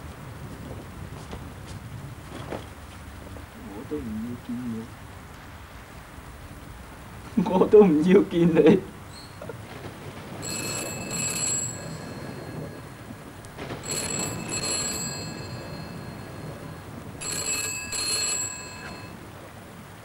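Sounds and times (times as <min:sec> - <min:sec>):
telephone ringing: 0:09.8 - 0:19.7.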